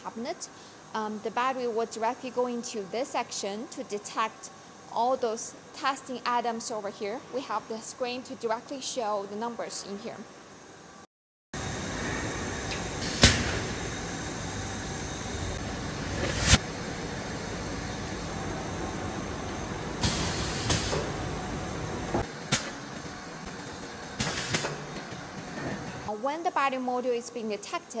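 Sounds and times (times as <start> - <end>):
assembly-line machinery noise: 11.6 - 26.1.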